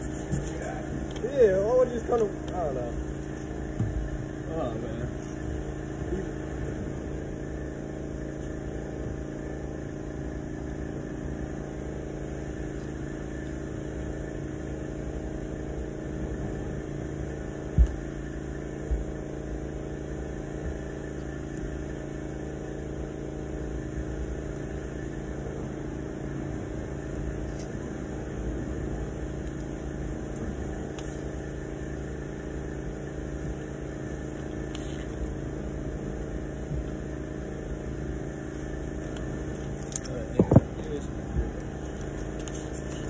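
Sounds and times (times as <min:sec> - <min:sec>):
machine hum: 0:00.0 - 0:43.0.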